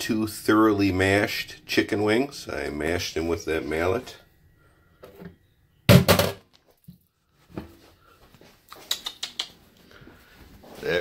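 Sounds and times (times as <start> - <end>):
faint knocks and handling: 6.5 - 8.6.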